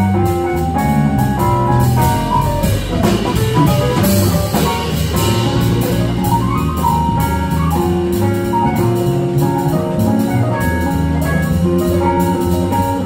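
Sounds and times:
drum kit beat: 0.0s - 13.0s
plucked upright bass: 0.0s - 13.0s.

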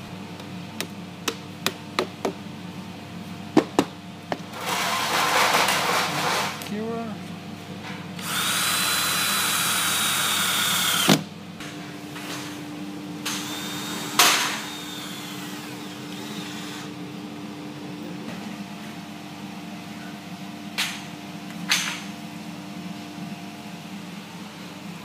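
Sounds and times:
cordless drill whining: 8.2s - 11.2s, 13.3s - 16.9s
drill click: 8.2s - 11.2s.

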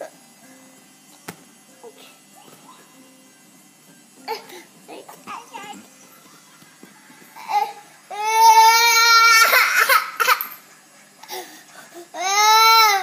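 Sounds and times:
toddler crying: 7.4s - 10.5s, 12.1s - 13.0s.

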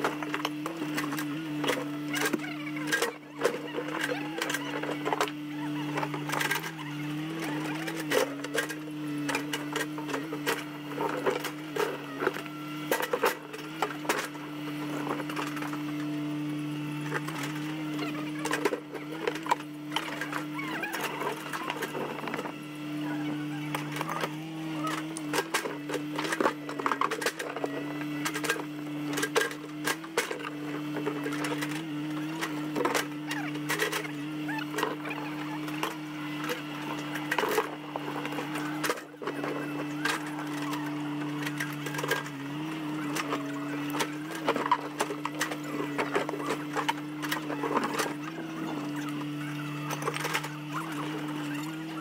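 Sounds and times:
diesel engine running: 0.0s - 52.0s
digging knocks and clatters: 23.6s - 51.9s.

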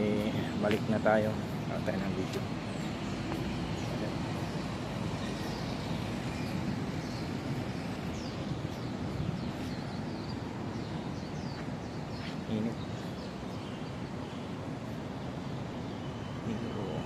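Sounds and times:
bird chirping: 0.0s - 17.0s
steady outdoor rumble: 0.0s - 17.0s.

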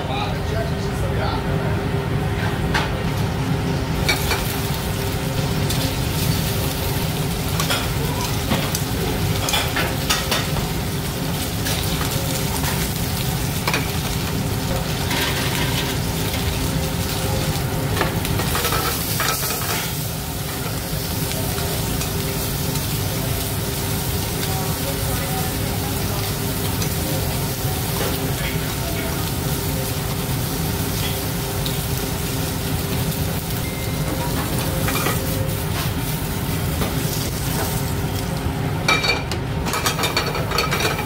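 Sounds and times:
octopus sizzling in a pan: 3.2s - 39.0s.

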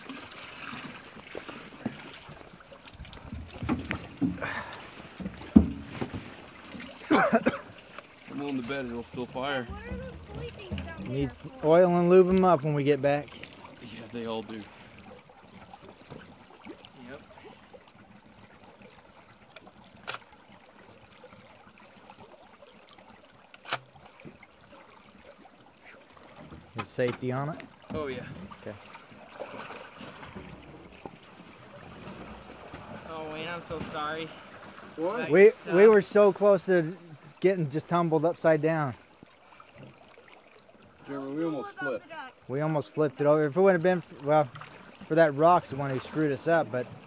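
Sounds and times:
creek water trickling: 0.0s - 47.0s
gear knocking against boat hull: 9.1s - 11.5s.

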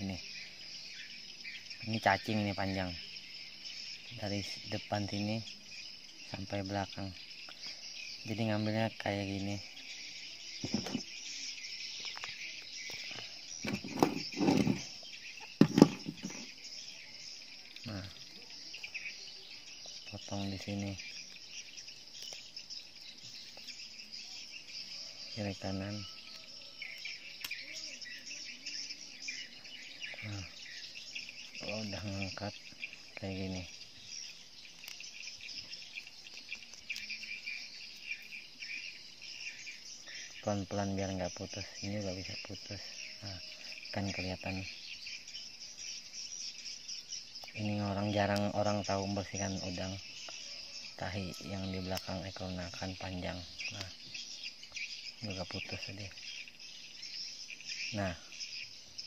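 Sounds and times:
insects chirring: 0.0s - 59.0s
hands rustling and knocking: 10.6s - 11.1s, 13.6s - 14.9s, 15.5s - 16.5s.

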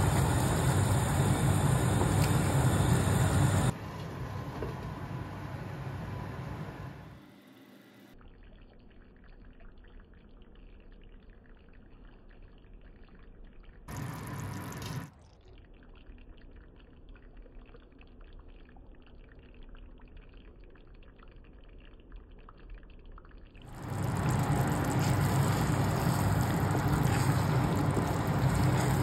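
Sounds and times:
curry bubbling and popping: 8.2s - 29.0s.

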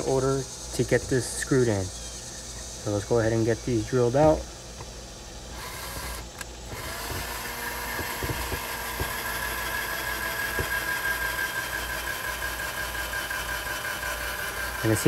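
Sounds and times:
cordless drill motor whine: 5.4s - 15.0s
drill clicks: 5.5s - 15.0s.

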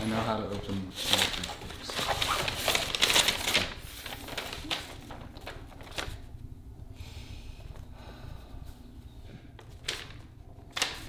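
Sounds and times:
rustling in a box: 0.0s - 6.3s
paper handling: 0.0s - 6.5s, 9.5s - 11.0s.

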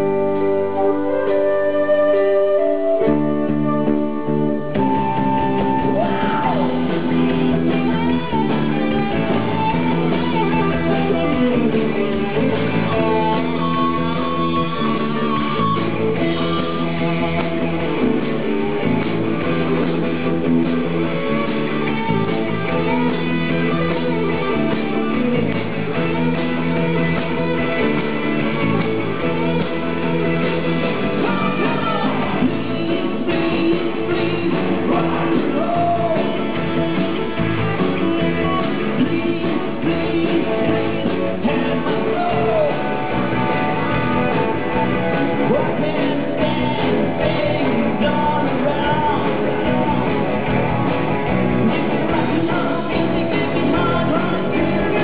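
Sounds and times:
live rock band playing: 0.0s - 55.0s
male lead vocal: 5.0s - 18.9s, 30.5s - 50.7s, 51.4s - 55.0s.

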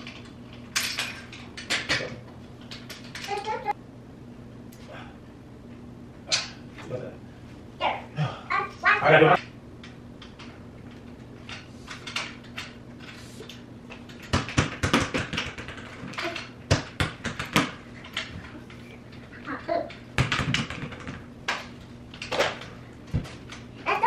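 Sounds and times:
clattering of parts being fitted: 0.0s - 3.7s, 9.8s - 13.2s
low steady hum: 0.0s - 24.0s.

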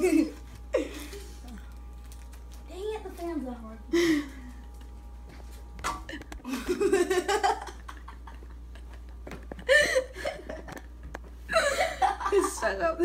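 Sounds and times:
children laughing and giggling: 6.1s - 12.9s.

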